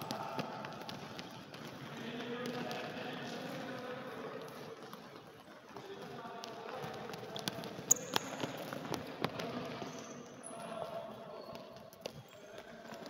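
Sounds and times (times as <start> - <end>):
balls bouncing on wooden floor: 0.0 - 3.8, 4.4 - 10.1.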